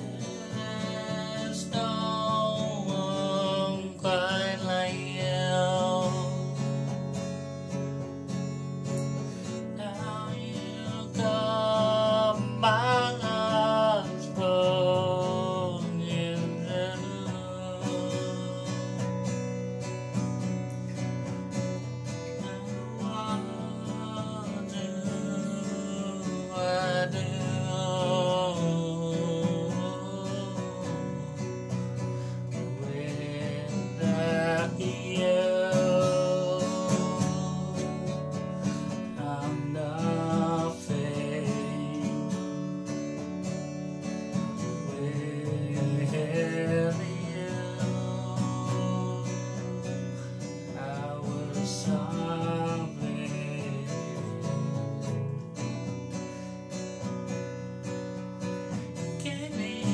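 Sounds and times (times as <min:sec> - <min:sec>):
man singing: 0:00.0 - 0:07.2, 0:08.3 - 0:19.8, 0:21.8 - 0:43.2, 0:44.3 - 0:55.9, 0:58.7 - 0:59.9
acoustic guitar playing: 0:00.0 - 0:59.9.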